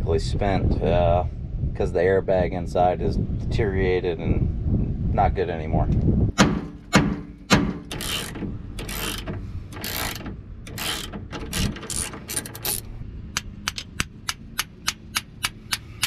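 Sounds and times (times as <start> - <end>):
rusted nut grinding: 6.6 - 16.0
ratchet wrench clicks: 7.9 - 16.0.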